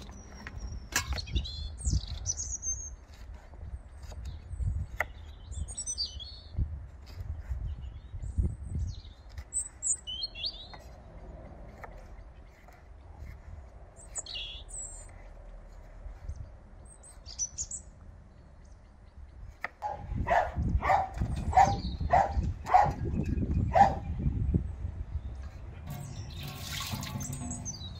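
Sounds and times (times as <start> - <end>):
small birds chirping: 0.0 - 27.9.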